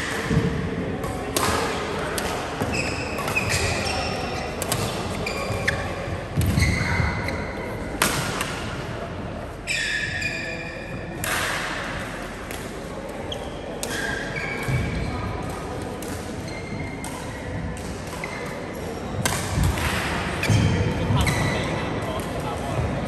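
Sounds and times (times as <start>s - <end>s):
rackets hitting shuttlecock: 0.0s - 7.1s, 7.9s - 8.8s, 11.1s - 12.9s, 13.7s - 22.9s
shoes squeaking on floor: 2.7s - 7.7s, 9.6s - 10.9s, 16.4s - 17.0s, 21.2s - 21.7s.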